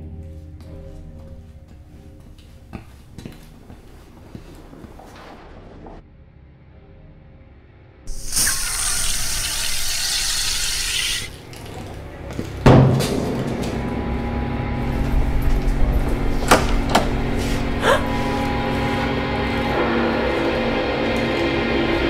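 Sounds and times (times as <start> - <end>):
low steady drone: 6.1 - 22.0
hissing fizz from test tube: 8.1 - 11.3.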